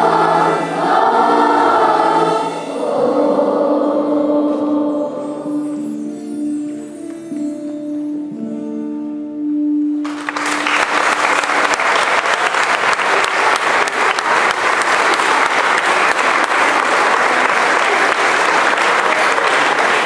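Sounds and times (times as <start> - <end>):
children's choir singing: 0.0 - 6.0, 11.5 - 20.0
audience applause: 10.0 - 20.0.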